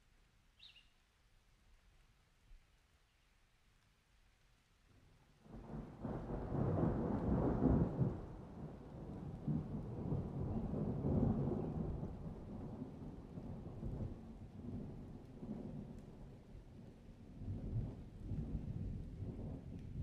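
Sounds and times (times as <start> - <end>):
falling rain: 1.2 - 20.0
rolling thunder: 5.5 - 16.5.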